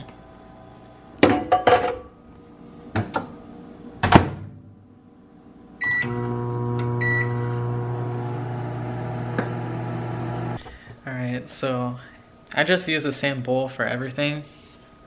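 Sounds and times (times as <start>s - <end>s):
microwave oven humming: 4.8s - 10.9s.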